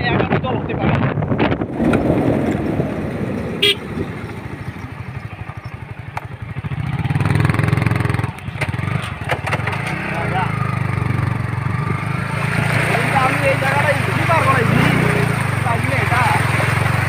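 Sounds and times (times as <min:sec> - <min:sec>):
motorcycle engines running: 0:01.1 - 0:17.0
horn toot: 0:03.6 - 0:03.9.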